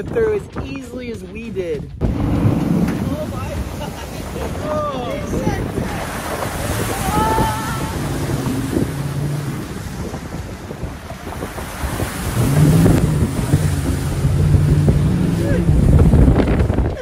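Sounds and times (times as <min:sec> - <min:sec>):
wind buffeting microphone: 0:00.0 - 0:17.0
water and mud splashing: 0:02.0 - 0:17.0.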